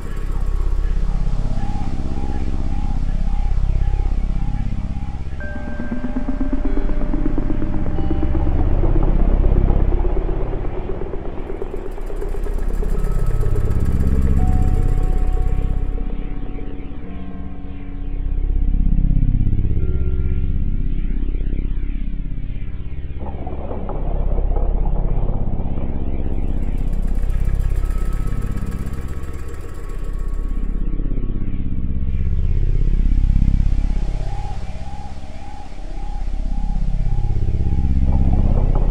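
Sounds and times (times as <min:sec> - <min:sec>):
faint high steady tone: 0:00.0 - 0:10.0, 0:11.4 - 0:18.8
dark ambient drone music: 0:00.0 - 0:38.9.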